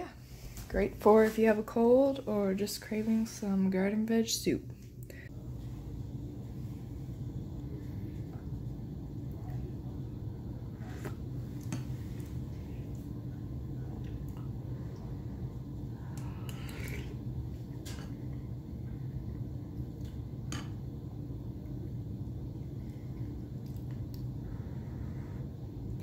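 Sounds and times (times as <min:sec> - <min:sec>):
steady low hum: 0:00.0 - 0:26.0
soft slurp: 0:16.1 - 0:17.2.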